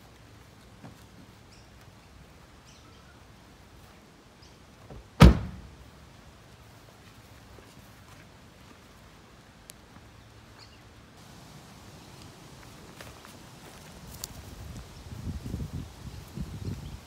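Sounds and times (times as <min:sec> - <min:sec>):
car door thudding shut: 0:05.2 - 0:05.7.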